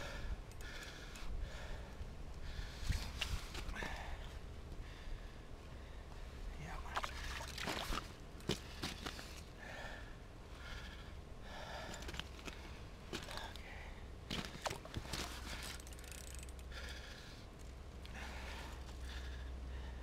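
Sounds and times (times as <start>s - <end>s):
person breathing heavily and snorting: 0.0s - 3.0s
wind rumble on microphone: 1.2s - 5.4s.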